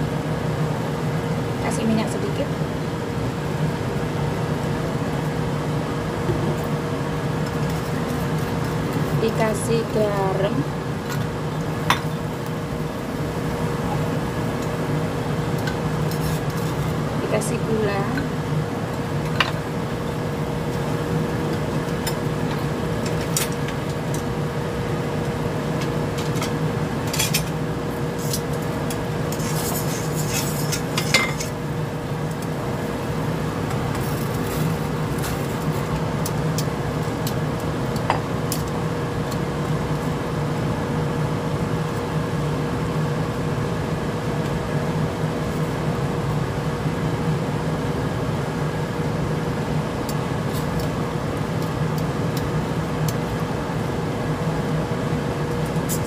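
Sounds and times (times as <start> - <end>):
constant hum: 0.0 - 56.0
water boiling in a pot: 0.0 - 56.0
metal tongs clinking on pot: 29.3 - 31.6.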